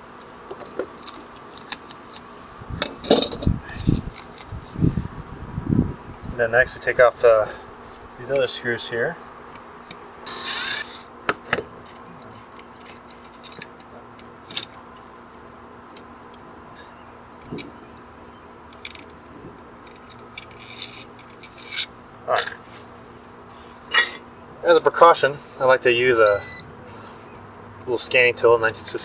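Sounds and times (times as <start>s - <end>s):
small metal clicks and scrapes: 11.8s - 14.8s, 18.7s - 22.6s.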